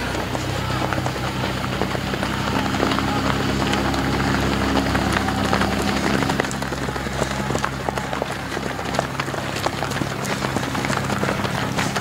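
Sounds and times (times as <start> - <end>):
running footsteps on pavement: 0.0 - 12.0.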